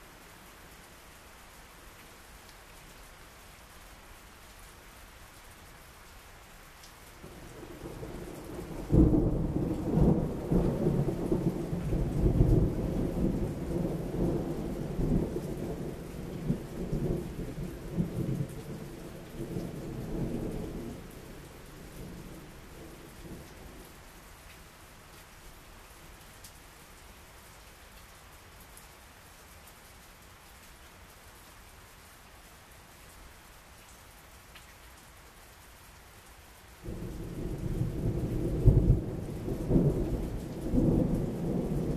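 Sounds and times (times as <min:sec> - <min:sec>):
steady rain: 0:00.0 - 0:41.9
thunder rumbling: 0:36.9 - 0:41.9.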